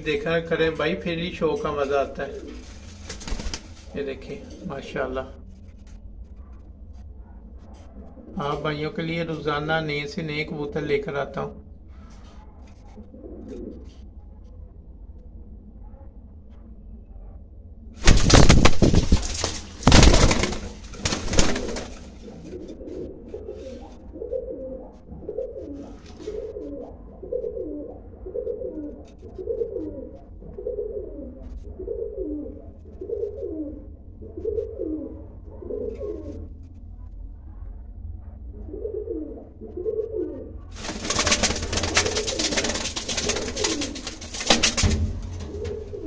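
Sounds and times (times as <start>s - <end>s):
pigeons cooing: 0.8s - 5.3s, 10.4s - 14.3s, 18.0s - 36.5s, 37.6s - 46.0s
loud rustling: 18.0s - 22.2s, 40.8s - 46.0s.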